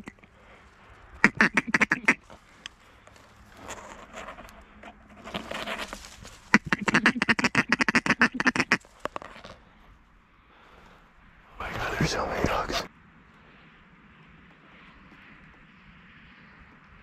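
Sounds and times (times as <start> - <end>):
duck quacking rapidly: 1.2 - 2.2, 6.5 - 8.8.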